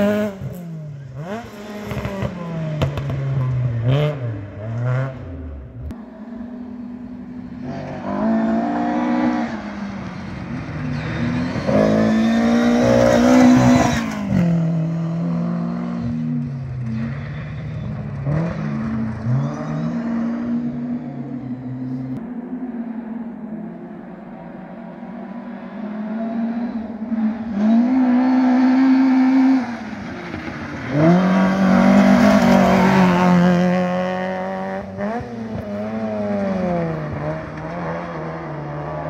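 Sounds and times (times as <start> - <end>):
rally car engine revving: 0.0 - 39.0.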